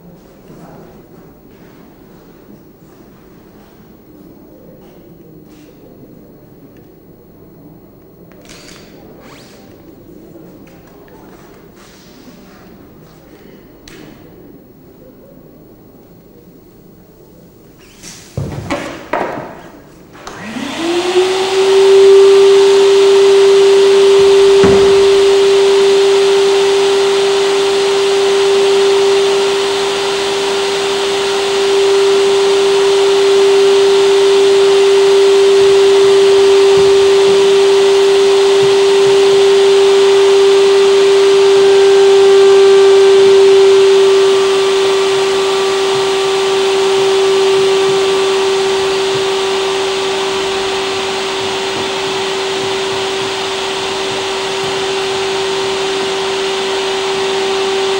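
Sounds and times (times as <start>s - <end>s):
electronic drone: 20.6s - 57.9s
dull low thump: 24.3s - 25.4s.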